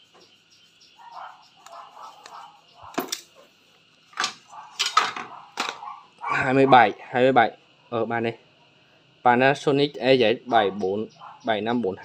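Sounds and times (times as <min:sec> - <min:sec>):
power tools set down on tiles: 0:03.0 - 0:03.3, 0:04.2 - 0:05.8.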